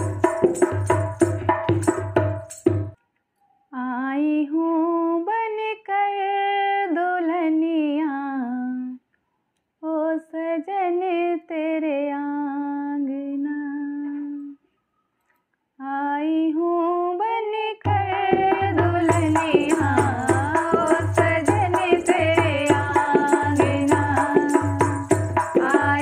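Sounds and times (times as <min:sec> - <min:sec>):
woman singing: 0:03.7 - 0:09.0, 0:09.8 - 0:14.6, 0:15.8 - 0:26.0
second woman singing: 0:15.8 - 0:26.0.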